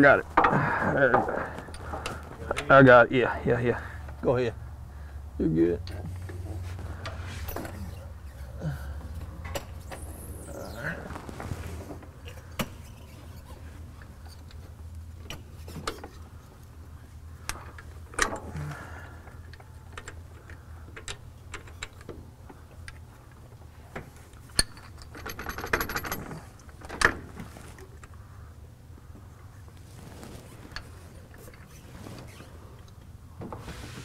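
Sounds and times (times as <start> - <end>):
steady low hum: 0.0 - 24.6.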